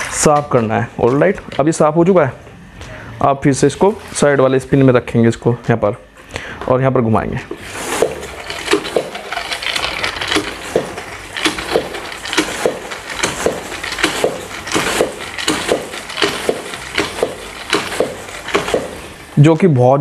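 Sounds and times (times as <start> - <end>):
spin mop clattering whirr: 7.5 - 20.0.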